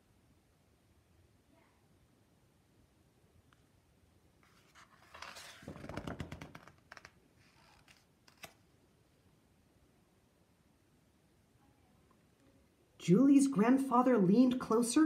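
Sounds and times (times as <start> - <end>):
book page turning: 4.4 - 8.6.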